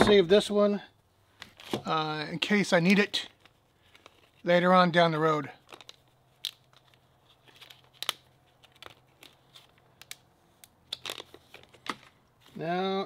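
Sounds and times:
plastic bag crinkling: 0:05.5 - 0:10.3, 0:10.9 - 0:12.2.

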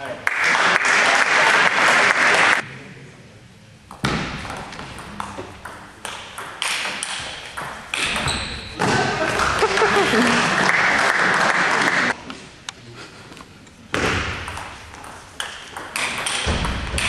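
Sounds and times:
applause: 0:00.1 - 0:02.6, 0:09.6 - 0:12.2.

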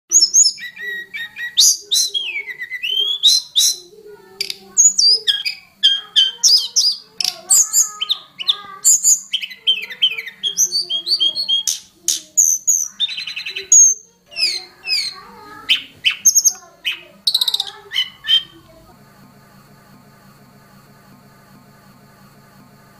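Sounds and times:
bird singing whistled notes: 0:00.1 - 0:03.9.

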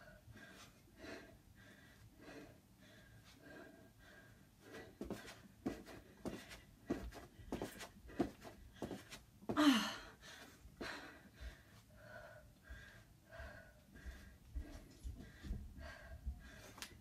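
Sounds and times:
woman breathing hard: 0:00.0 - 0:17.0
feet thudding on rug: 0:05.0 - 0:09.6.

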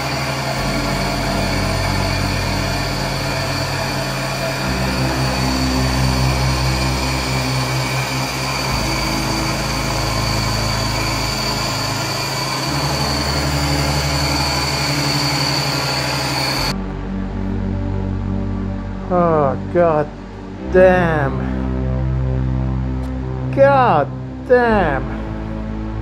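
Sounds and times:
milling machine cutting steel: 0:00.0 - 0:16.7
high even whine: 0:00.0 - 0:26.0.

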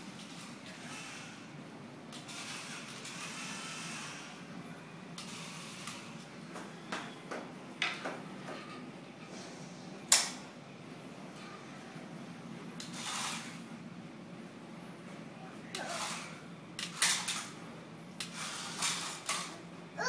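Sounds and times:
toy car electric motor whirring: 0:00.3 - 0:01.5, 0:02.1 - 0:04.4, 0:12.8 - 0:13.6, 0:15.8 - 0:17.5, 0:18.2 - 0:19.5.

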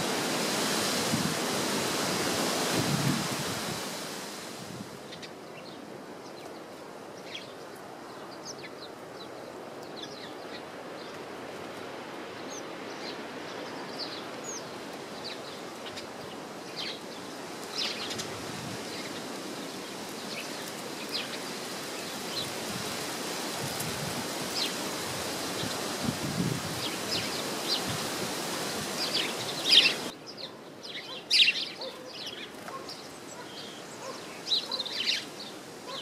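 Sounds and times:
wind rushing: 0:00.0 - 0:05.0
small birds chirping: 0:05.0 - 0:11.4, 0:12.4 - 0:36.0.

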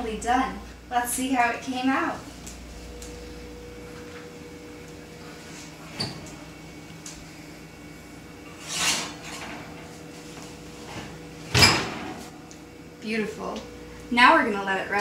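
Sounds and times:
steady low hum: 0:00.0 - 0:15.0
metal rack and glass dish scraping: 0:08.6 - 0:09.8
oven door shutting with knock: 0:10.9 - 0:12.4.

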